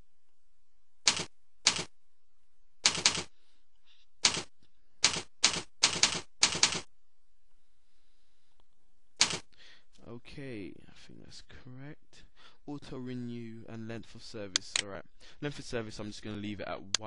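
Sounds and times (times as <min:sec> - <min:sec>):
keyboard keystrokes: 0:01.1 - 0:01.9, 0:02.8 - 0:03.3, 0:04.2 - 0:06.9, 0:09.2 - 0:09.4.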